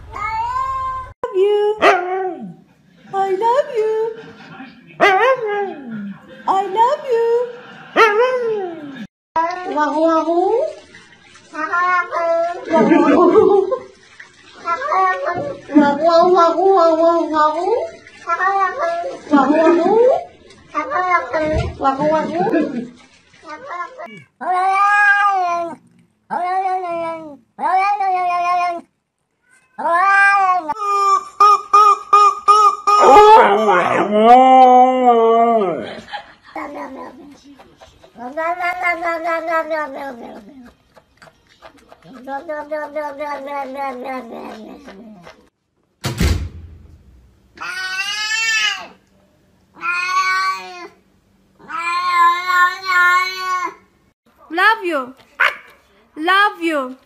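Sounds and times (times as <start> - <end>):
cat meowing: 23.6 - 30.8, 38.2 - 40.5, 49.8 - 50.9, 51.6 - 53.8
short thump: 46.0 - 47.3.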